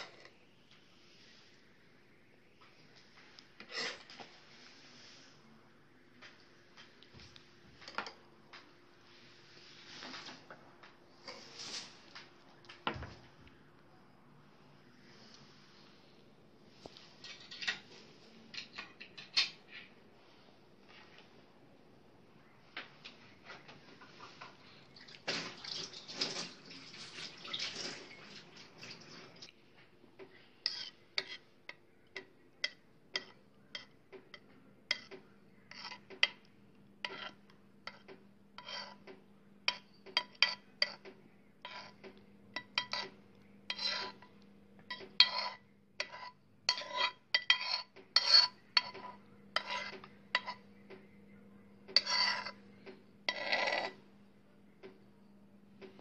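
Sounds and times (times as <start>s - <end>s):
faint steady hum: 0.0s - 56.0s
metal spoon scraping glass cup: 30.7s - 31.4s, 37.1s - 38.0s, 38.6s - 39.0s, 43.7s - 44.3s, 45.2s - 50.6s, 52.0s - 52.6s, 53.3s - 54.0s.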